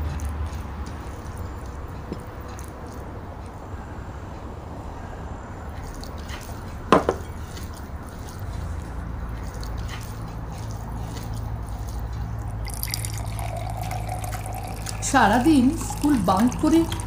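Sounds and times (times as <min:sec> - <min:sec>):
wet squishing of food by hand: 0:05.8 - 0:17.0
sharp knock: 0:06.9 - 0:07.2.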